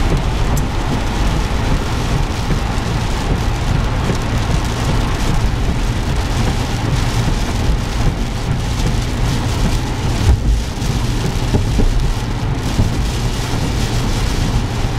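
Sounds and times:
heavy rain on car roof: 0.0s - 14.9s
tyres rumbling on wet road: 0.0s - 14.9s
small thumps: 10.2s - 10.7s.

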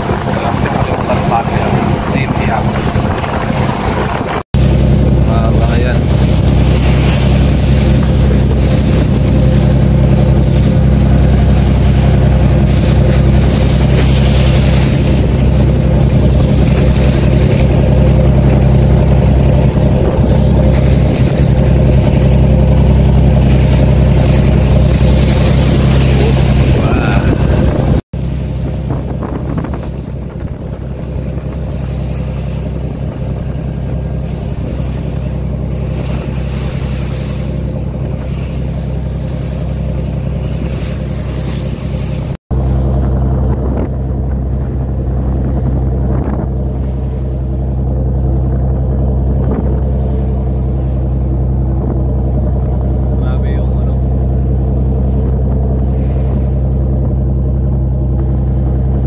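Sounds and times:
wind rushing: 0.0s - 31.8s
boat engine running: 0.0s - 59.0s
choppy water: 0.0s - 59.0s.

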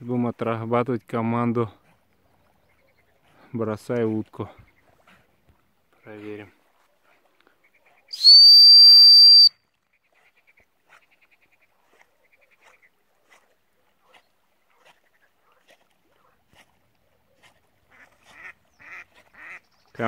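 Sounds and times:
high-pitched whistle blast: 8.1s - 9.5s.

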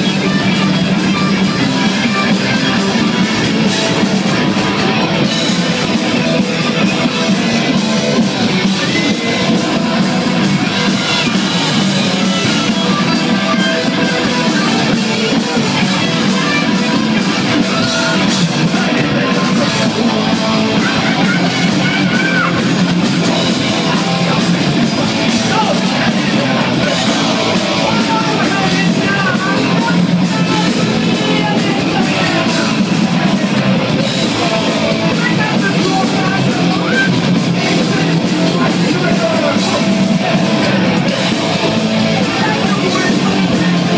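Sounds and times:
distorted electric guitars: 0.0s - 43.9s
singer shouting into microphone: 6.2s - 43.9s.

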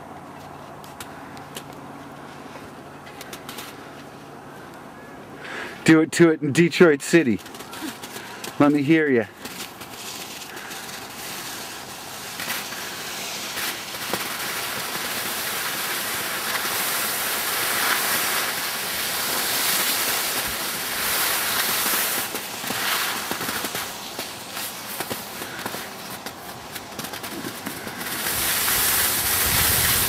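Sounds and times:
skis scraping over snow: 6.8s - 30.0s
wind rushing over microphone: 28.2s - 30.0s.

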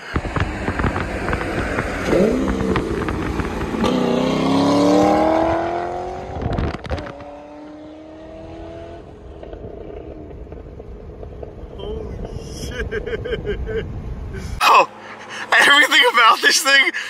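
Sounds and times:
car engine accelerating hard: 0.0s - 11.3s.

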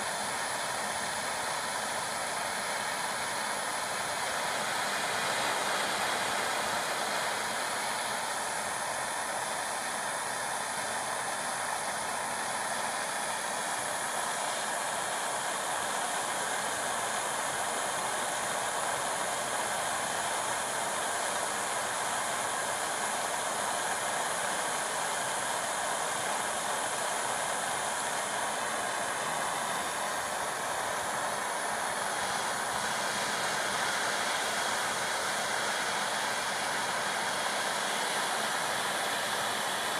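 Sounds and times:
torch flame hissing: 0.0s - 39.9s.

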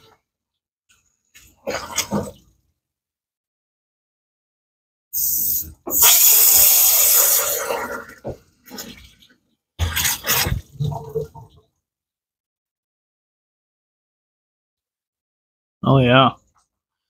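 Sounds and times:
hose nozzle spraying water: 5.2s - 7.9s.

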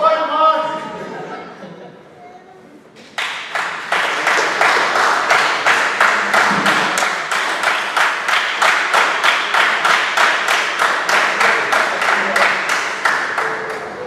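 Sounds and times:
hands clapping rhythmically: 3.0s - 14.0s.

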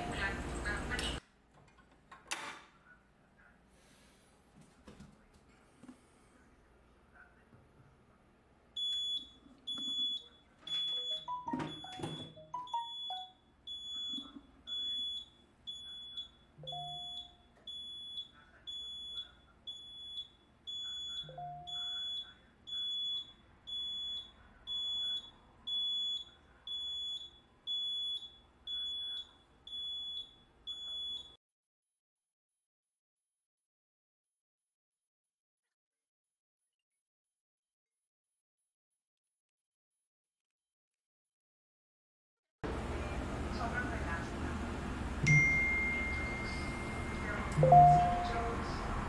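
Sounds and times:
shrill alarm beeping: 8.8s - 31.4s, 45.3s - 48.5s.

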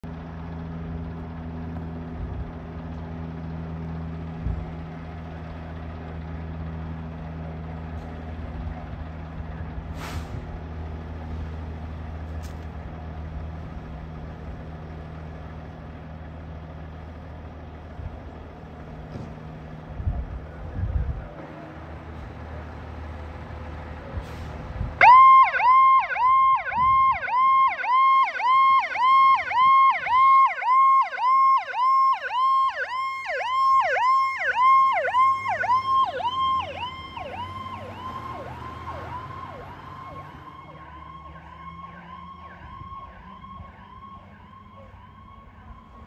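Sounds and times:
fire engine diesel engine rumbling: 0.0s - 46.0s
electronic siren yelping: 25.0s - 46.0s.

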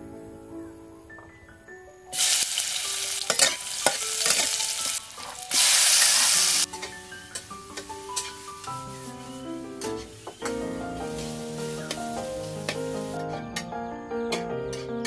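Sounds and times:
onions sizzling in hot oil: 2.1s - 13.2s
spatula scraping a wok: 3.3s - 10.3s, 11.0s - 13.2s.

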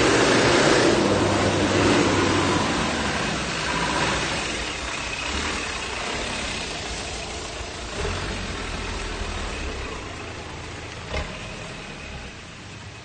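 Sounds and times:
engine rumbling at low revs: 0.0s - 13.0s.

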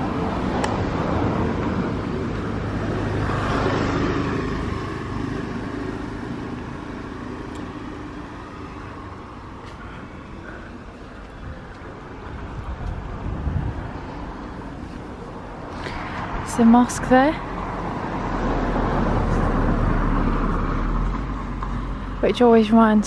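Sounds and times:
motor scooter passing: 0.0s - 22.2s.

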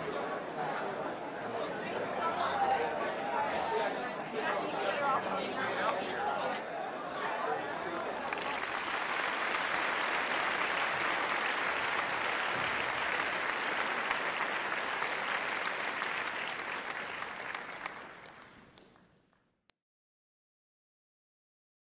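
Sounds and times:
group applauding: 7.9s - 19.4s.

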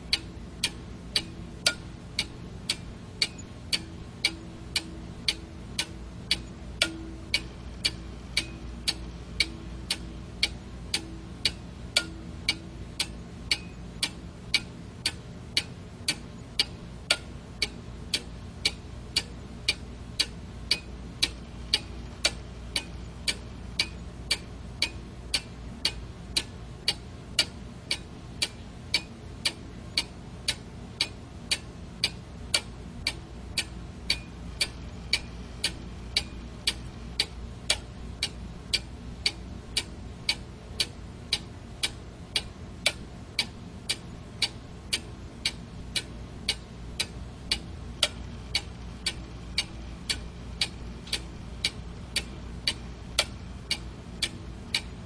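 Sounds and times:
alarm clock ticking: 0.1s - 27.0s.

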